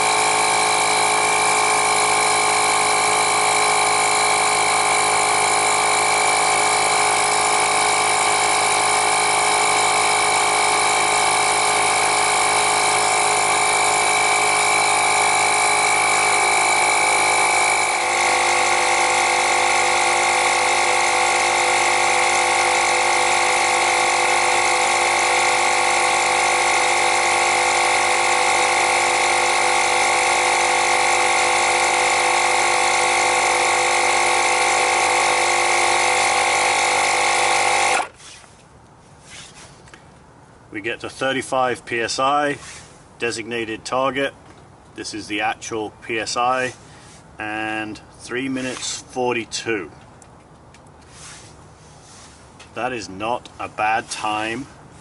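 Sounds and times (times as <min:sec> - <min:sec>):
tire inflator compressor running: 0:00.0 - 0:38.7, 0:46.7 - 0:49.2.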